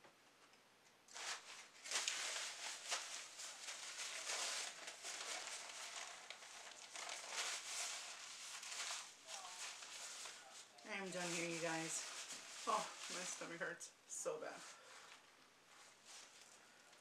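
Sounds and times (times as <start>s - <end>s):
paper towel crinkling: 1.1s - 13.9s, 14.5s - 17.0s.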